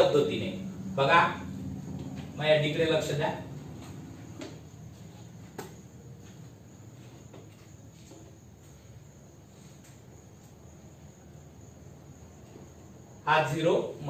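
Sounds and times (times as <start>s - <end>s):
low hum: 0.0s - 4.9s.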